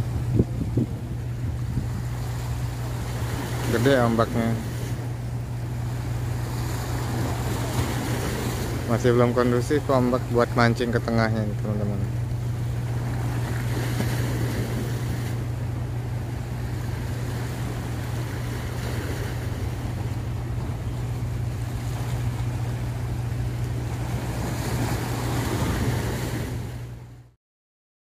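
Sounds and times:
wind buffeting microphone: 0.0 - 3.5
choppy sea waves: 0.0 - 27.4
steady low hum: 0.0 - 27.4.

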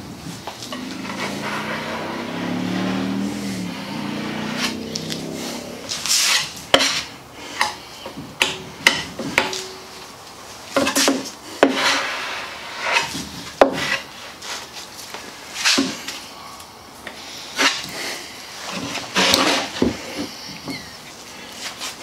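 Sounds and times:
spreader scraping: 0.6 - 7.1.

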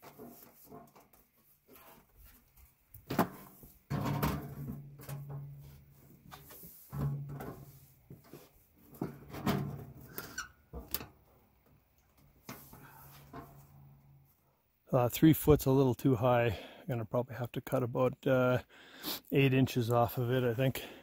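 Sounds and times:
metal stovepipe rattling and scraping: 6.9 - 7.8, 8.9 - 11.2.

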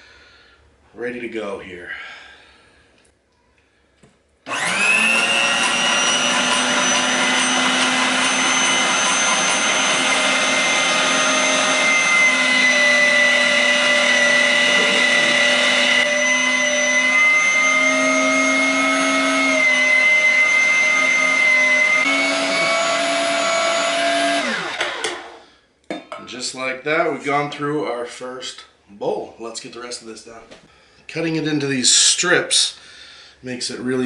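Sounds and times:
electric meat grinder whine: 4.5 - 25.4.

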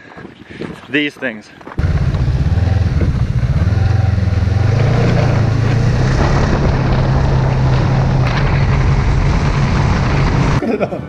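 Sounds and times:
snowmobile engine running: 1.8 - 10.6.

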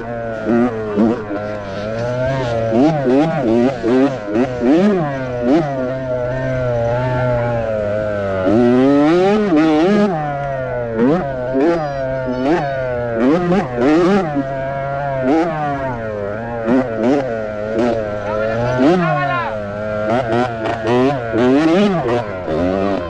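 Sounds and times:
motocross bike engine revving: 0.0 - 23.0.

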